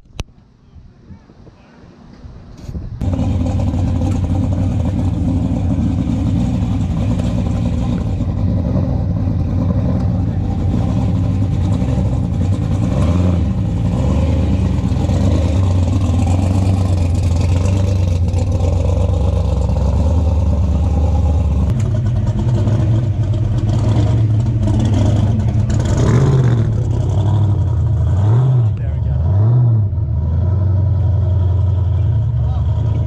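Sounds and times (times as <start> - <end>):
engine throttle blip: 3.0 - 29.0
supercharged engine running low: 3.0 - 33.0.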